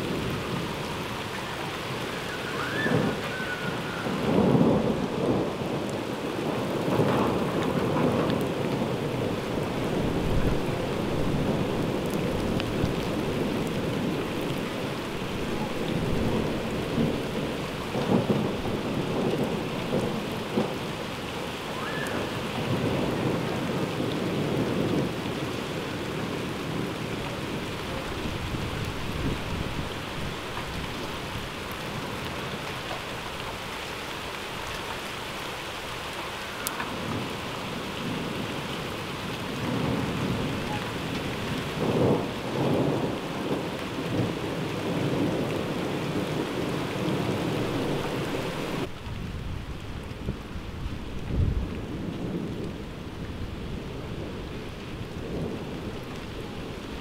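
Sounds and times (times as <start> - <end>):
heavy rain falling: 0.0 - 57.0
rolling thunder: 2.4 - 21.0, 39.2 - 48.1.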